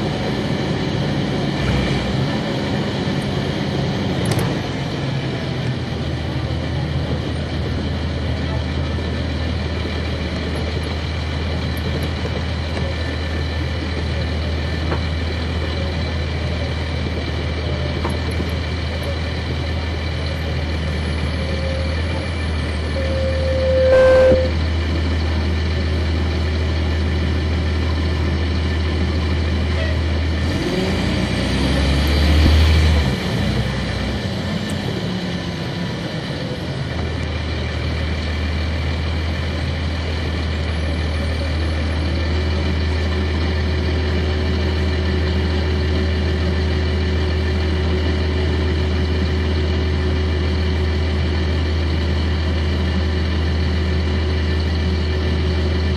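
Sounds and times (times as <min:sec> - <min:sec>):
bus diesel engine running: 0:00.0 - 0:55.9
short high squeal: 0:22.7 - 0:24.6.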